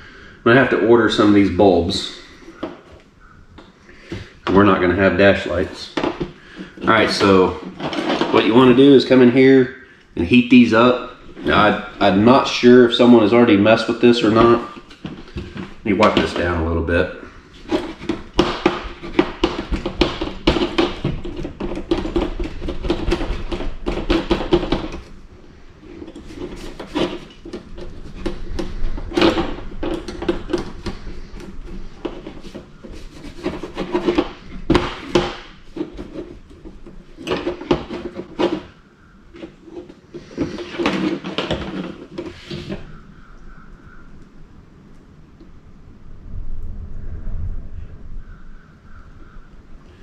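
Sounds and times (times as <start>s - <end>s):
knocks of board being handled: 5.5s - 8.8s, 17.6s - 25.2s, 25.8s - 44.1s
cloth rag scrubbing circuit board: 25.8s - 38.7s.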